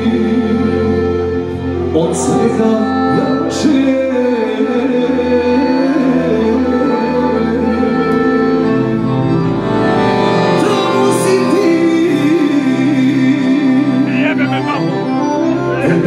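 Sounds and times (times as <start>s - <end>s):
piano accordion melody: 0.0s - 16.0s.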